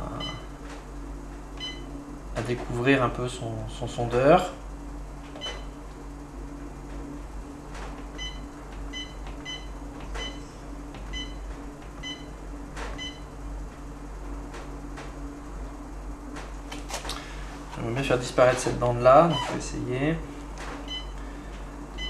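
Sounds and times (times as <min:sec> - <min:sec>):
steady low hum: 0:00.0 - 0:22.0
electronic key beeps: 0:05.4 - 0:05.7.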